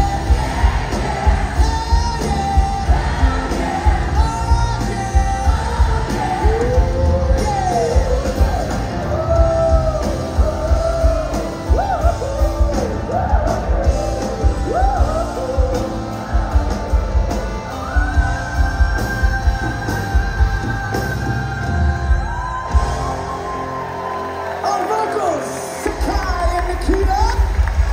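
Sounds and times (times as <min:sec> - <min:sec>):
drums keeping a beat: 0:00.0 - 0:24.2
live rock band playing: 0:00.0 - 0:27.9
piano: 0:00.0 - 0:27.9.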